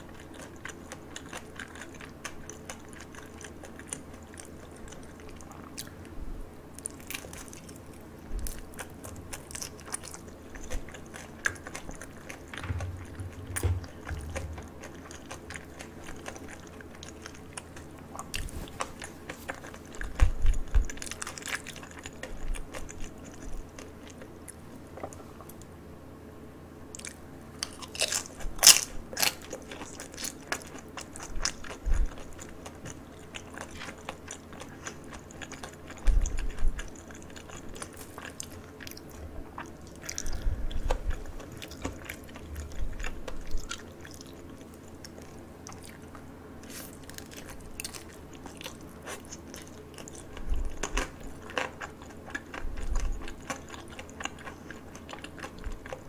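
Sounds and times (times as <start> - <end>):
chewing crisp fried food: 0.0 - 25.7, 26.8 - 56.0.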